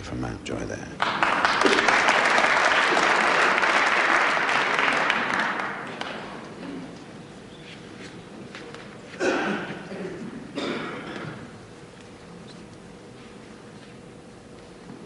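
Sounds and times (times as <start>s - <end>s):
audience applauding: 1.0s - 6.4s.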